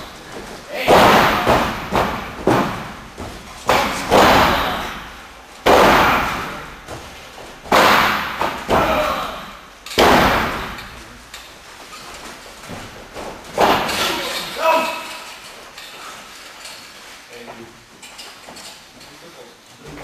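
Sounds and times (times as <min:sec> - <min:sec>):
bodies slamming onto ring floor: 0:00.0 - 0:11.0, 0:12.7 - 0:14.8.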